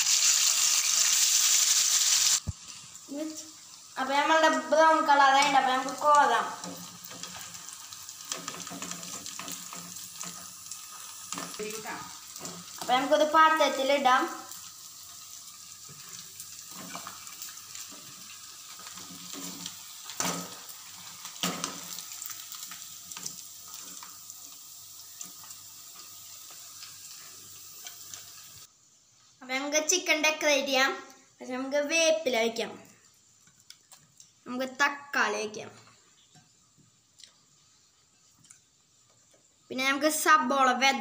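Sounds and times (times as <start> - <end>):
oil sizzling: 0.0 - 41.0.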